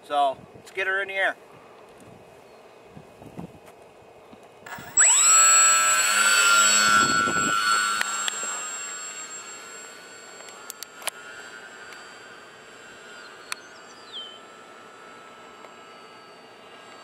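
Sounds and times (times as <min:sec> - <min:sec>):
model plane motor whine: 0:04.6 - 0:17.0.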